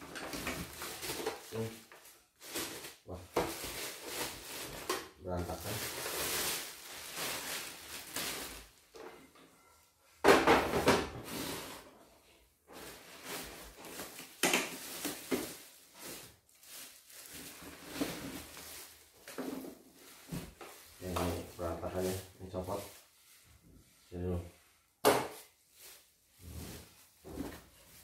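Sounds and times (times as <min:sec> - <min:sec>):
plastic wrapping crinkling: 0:00.0 - 0:09.0, 0:12.7 - 0:23.2.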